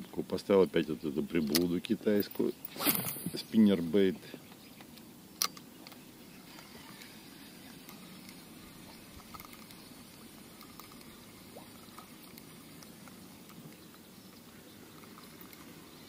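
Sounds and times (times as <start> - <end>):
water drips: 8.8 - 14.0.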